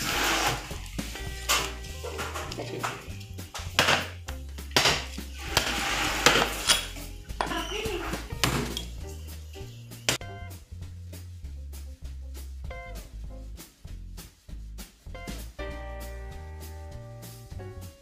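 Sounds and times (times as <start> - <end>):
background music: 0.0 - 18.0
cleaver chopping fish: 2.2 - 6.4.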